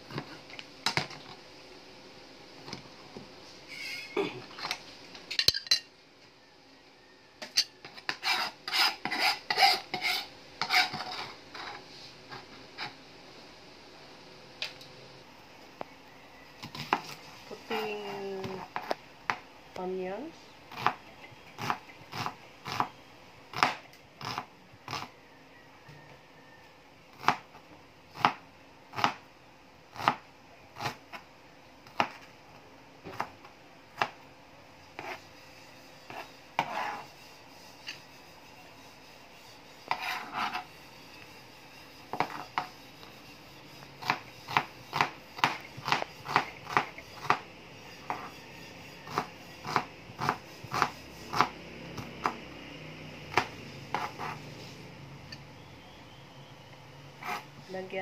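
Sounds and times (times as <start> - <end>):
knife chopping on cutting board: 23.5 - 25.1, 27.2 - 27.5, 28.2 - 28.4, 29.0 - 29.2, 31.9 - 32.2, 33.1 - 33.4, 35.0 - 35.2, 36.1 - 37.1, 39.9 - 40.6, 42.1 - 42.8, 44.0 - 47.4, 48.0 - 48.4, 49.0 - 52.5, 53.3 - 54.4.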